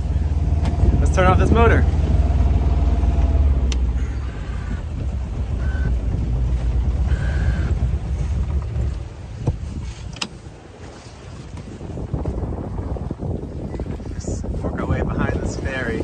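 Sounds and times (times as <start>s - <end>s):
boat engine running: 0.0s - 16.0s
control clicks: 3.6s - 4.8s.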